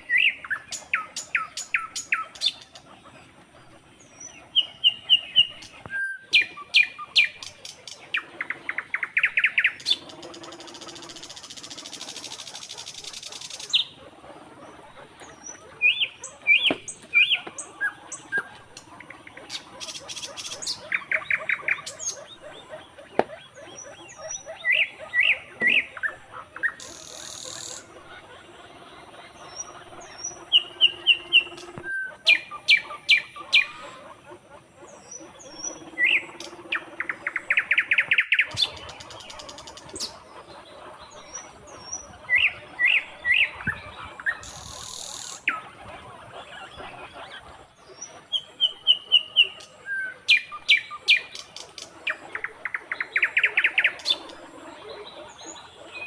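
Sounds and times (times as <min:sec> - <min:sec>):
birds chirping and trilling: 0:00.0 - 0:56.0.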